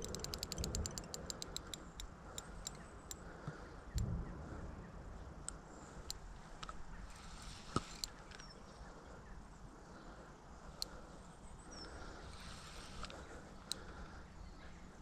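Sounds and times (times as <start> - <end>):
fishing reel clicking: 0.0 - 3.2
low steady background noise: 0.0 - 15.0.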